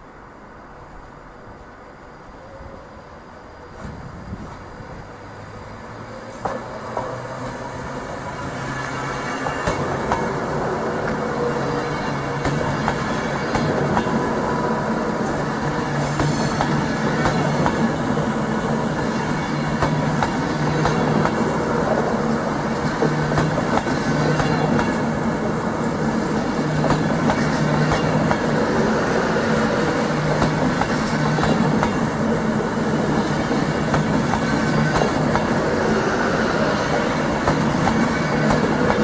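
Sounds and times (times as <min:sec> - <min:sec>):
low train hum: 0:00.0 - 0:39.0
train wheels clicking over rail joints: 0:06.2 - 0:07.6, 0:08.6 - 0:10.4, 0:11.0 - 0:14.3, 0:15.2 - 0:22.0, 0:22.6 - 0:36.0, 0:36.6 - 0:39.0.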